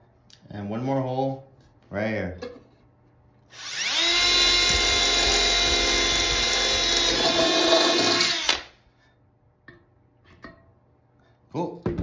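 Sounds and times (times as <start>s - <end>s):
cordless drill whining through metal: 3.5s - 8.7s.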